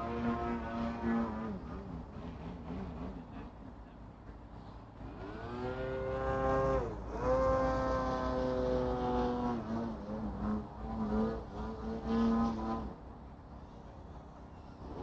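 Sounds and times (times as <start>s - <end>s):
quadcopter motors whining: 5.0s - 15.0s.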